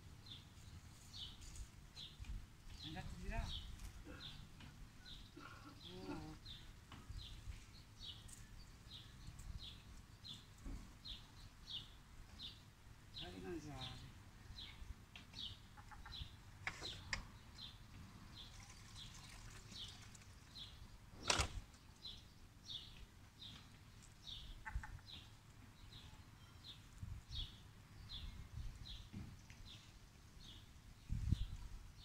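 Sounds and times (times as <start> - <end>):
small bird chirping: 21.9 - 32.0.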